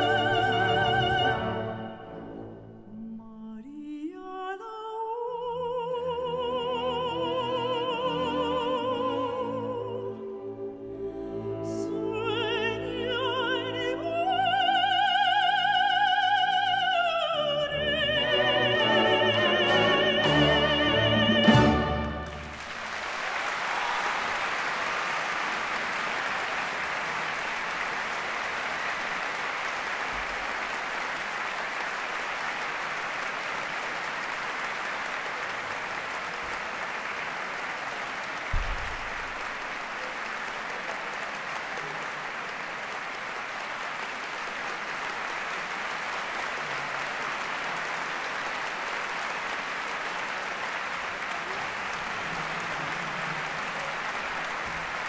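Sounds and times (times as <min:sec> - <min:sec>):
audience applause: 0:20.3 - 0:55.0
low thump: 0:38.5 - 0:39.3.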